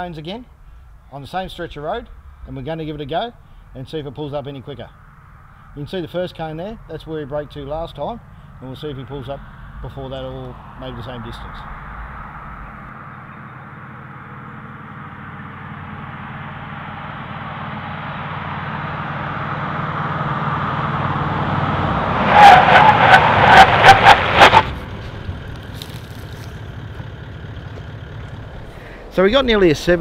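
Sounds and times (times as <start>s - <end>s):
vehicle tyre and engine noise: 0.0s - 30.0s
tyres squealing: 21.9s - 28.8s.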